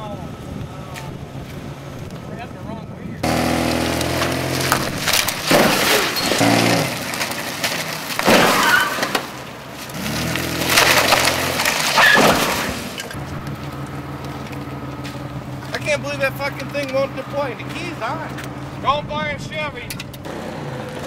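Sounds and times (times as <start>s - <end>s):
car engine revving: 3.2s - 8.2s, 9.1s - 18.9s, 20.1s - 21.0s
sheet metal crunching: 3.2s - 13.8s
breaking glass and plastic: 3.8s - 13.2s.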